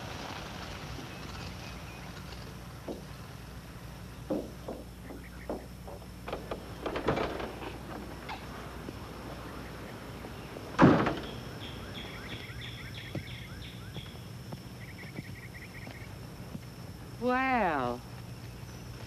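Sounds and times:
bird chirping: 0:09.4 - 0:16.2.

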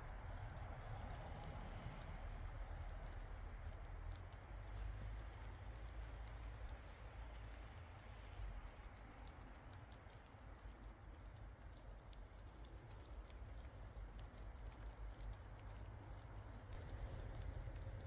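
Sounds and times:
low rumble: 0:15.6 - 0:18.0.

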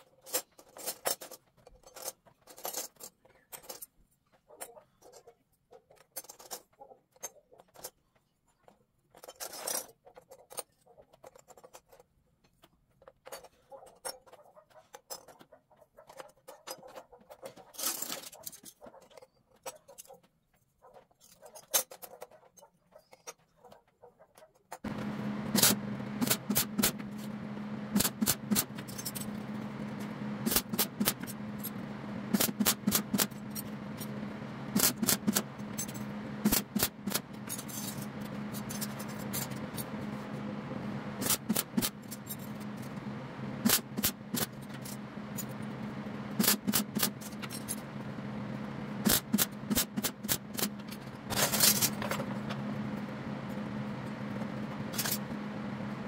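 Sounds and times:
steady low hum: 0:24.8 - 0:56.0
welder crackling bursts: 0:24.9 - 0:52.1.

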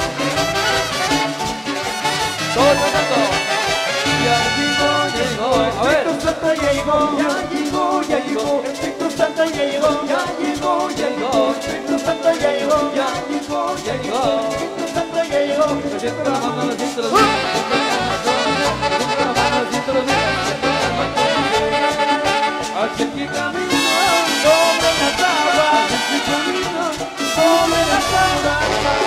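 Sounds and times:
conga drums beat: 0:00.0 - 0:29.0
live latin gospel band playing: 0:00.0 - 0:29.0
trumpet and saxophone melody: 0:00.0 - 0:29.0.

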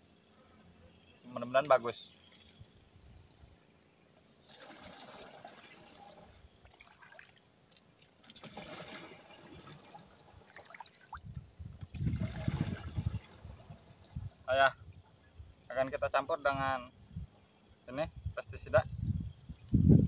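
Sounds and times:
water sloshing and trickling: 0:04.4 - 0:15.0.

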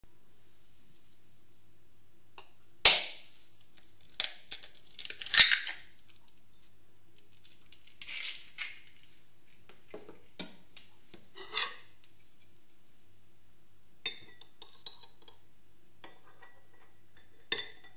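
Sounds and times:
eggshell cracking over bowl: 0:03.8 - 0:06.2.

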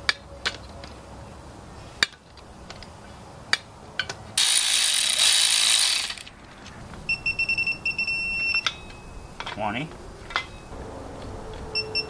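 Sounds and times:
zip ties ratcheting: 0:04.4 - 0:06.3.

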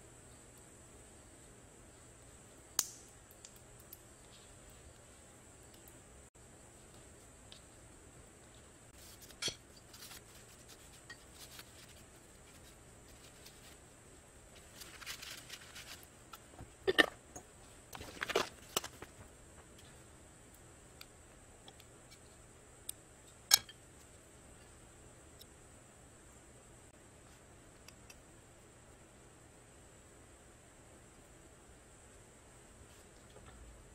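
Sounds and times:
paper rustle: 0:09.0 - 0:13.9, 0:14.5 - 0:16.2, 0:18.0 - 0:19.3.

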